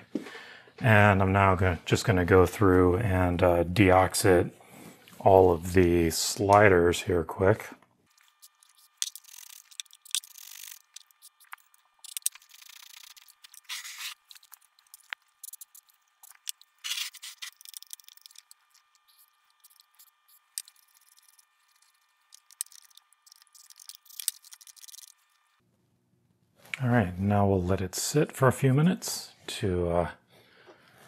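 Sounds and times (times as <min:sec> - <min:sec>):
switches clicking and rubbing: 0:08.1 - 0:25.3.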